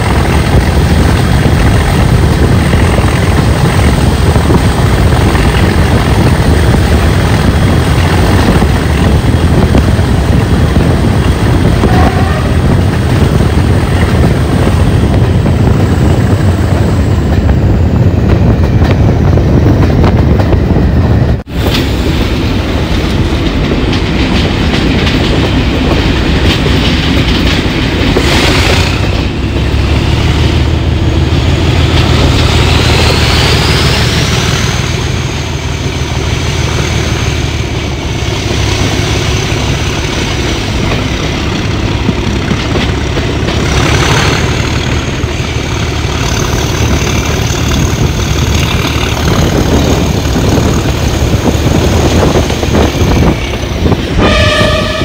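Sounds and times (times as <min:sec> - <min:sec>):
diesel locomotive engine rumbling: 0:00.0 - 0:55.0
wheel and rail noise: 0:00.0 - 0:55.0
turbocharger whistle: 0:54.2 - 0:55.0.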